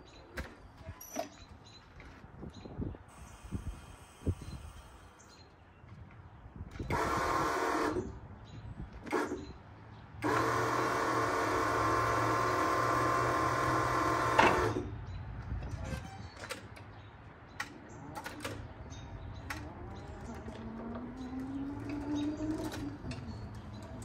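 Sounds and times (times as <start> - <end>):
electric forklift motor whine: 6.9 - 8.2, 10.2 - 14.9, 19.5 - 24.0.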